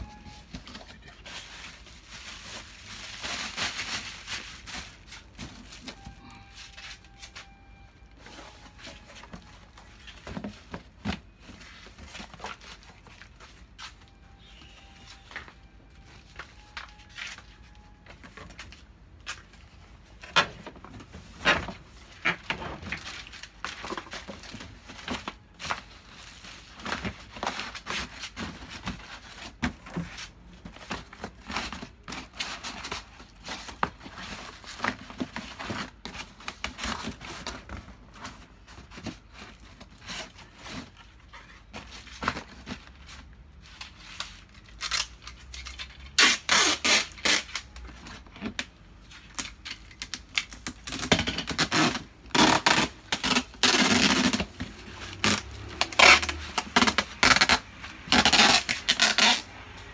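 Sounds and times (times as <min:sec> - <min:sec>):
bubble wrap and paper crinkling: 0:00.0 - 0:59.9.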